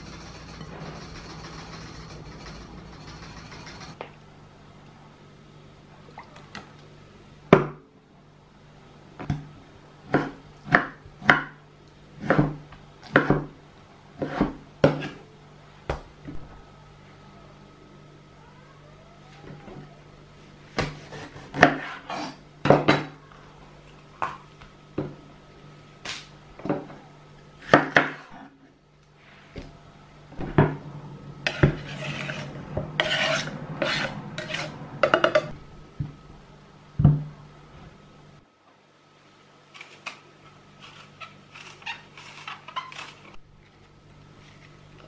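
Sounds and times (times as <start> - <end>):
steady low hum: 0.0 - 19.2, 22.4 - 45.0
knife scraping board: 14.2 - 15.2, 20.8 - 22.4, 31.4 - 35.5, 40.8 - 43.4
blade rasping through apple skin: 40.8 - 43.4.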